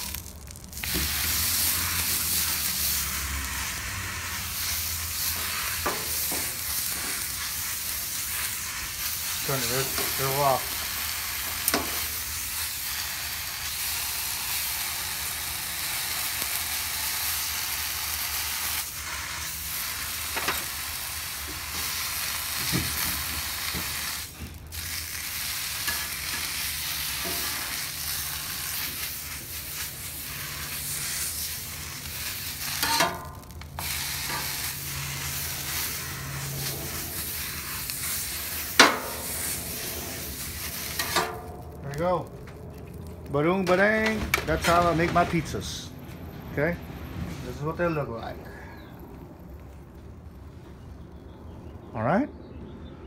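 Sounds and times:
water sizzling on hot griddle: 0.0s - 45.3s
metal scraper scraping griddle: 25.6s - 41.5s.

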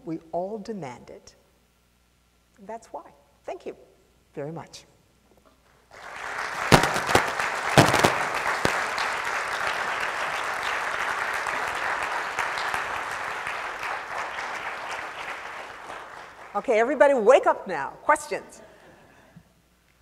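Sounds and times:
audience applauding: 5.9s - 16.6s
sharp single claps: 6.5s - 10.0s.

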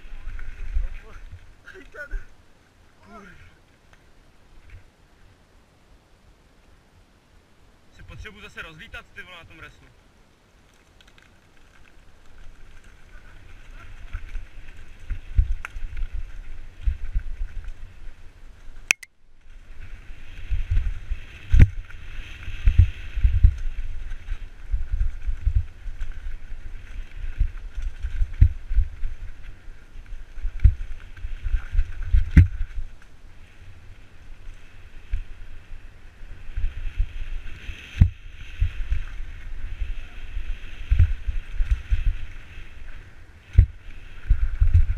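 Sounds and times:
mountain bike rattling on trail: 10.6s - 18.9s, 19.5s - 44.9s
wind buffeting microphone: 20.2s - 29.6s.

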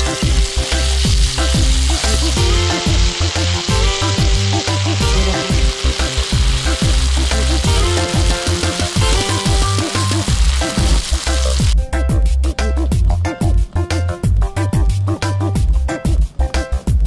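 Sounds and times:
food sizzling on hot plate: 0.0s - 11.8s
music with thumping bass: 0.0s - 17.0s.

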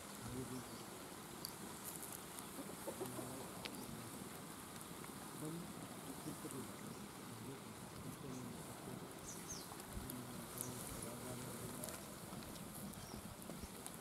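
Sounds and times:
outdoor background hiss: 0.0s - 14.0s
chickens clucking: 2.2s - 7.2s.

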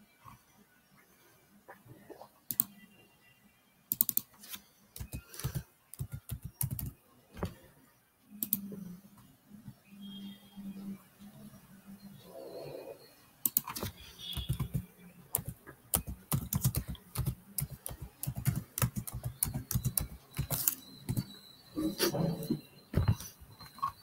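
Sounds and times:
computer keyboard typing: 2.5s - 2.8s, 3.9s - 7.0s, 8.4s - 8.7s, 13.4s - 21.4s.

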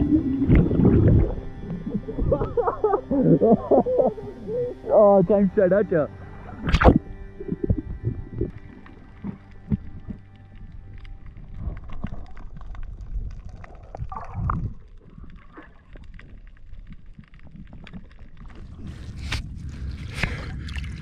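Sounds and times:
wind on microphone: 0.0s - 4.8s
water sloshing and splashing: 6.4s - 21.0s.

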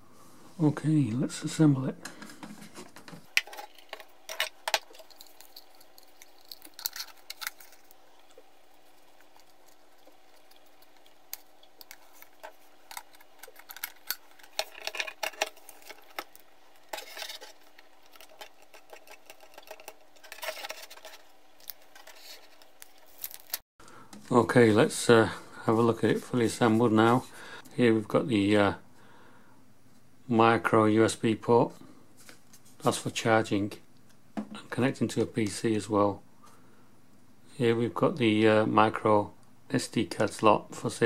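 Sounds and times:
plastic and metal parts clicking: 10.3s - 23.6s.

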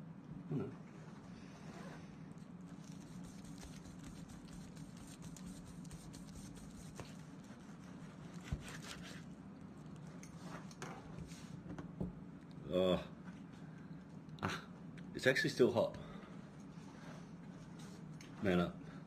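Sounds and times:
low steady hum: 0.0s - 19.0s
knife slicing meat: 2.8s - 9.3s.

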